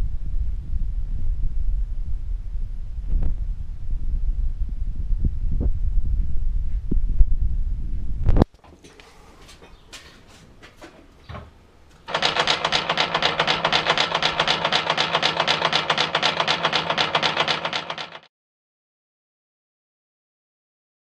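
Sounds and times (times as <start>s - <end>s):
coal crusher metallic clatter: 12.0s - 18.3s.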